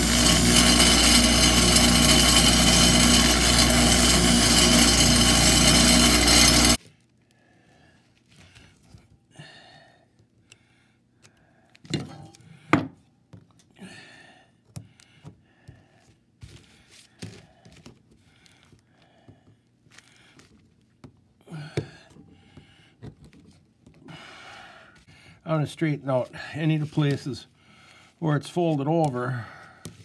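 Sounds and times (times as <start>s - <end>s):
hand tool scraping metal: 0.0s - 6.8s.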